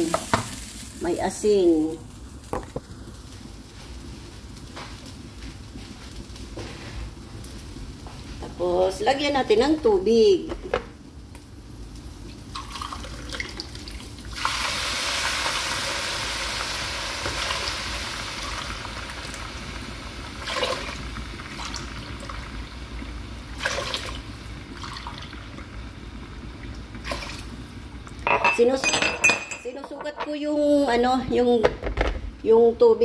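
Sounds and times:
water pouring into cup: 12.5 - 14.0.

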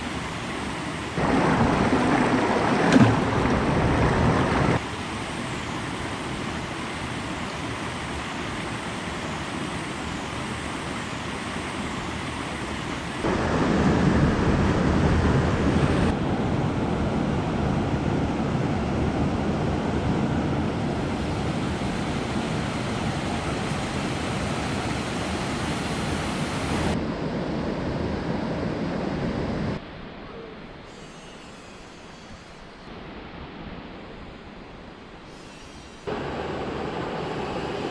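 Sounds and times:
river rushing over stones: 1.2 - 4.8.

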